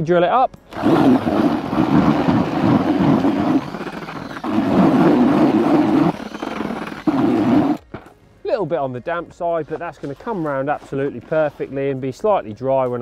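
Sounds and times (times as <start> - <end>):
electric drill mixing in bucket: 0.7 - 7.8.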